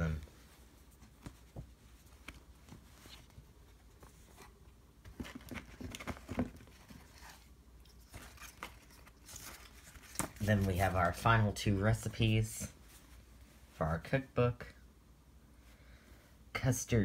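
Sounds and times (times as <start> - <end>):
paper and card rustling: 0.6 - 13.2.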